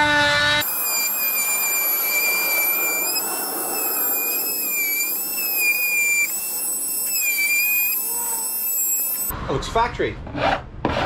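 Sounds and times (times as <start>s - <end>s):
power cutting tool whining: 0.6s - 9.3s.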